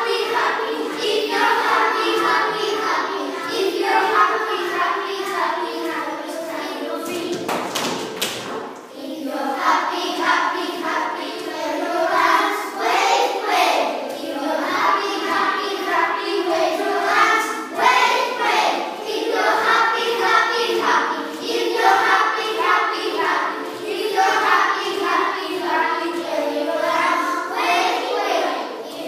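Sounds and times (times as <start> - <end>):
children singing together: 0.0 - 29.0.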